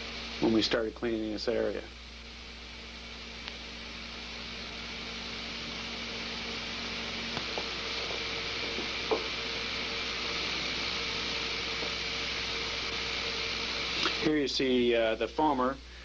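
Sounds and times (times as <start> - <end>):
faint steady hum: 0.0 - 16.0
foam spraying from hose nozzle: 6.7 - 14.4.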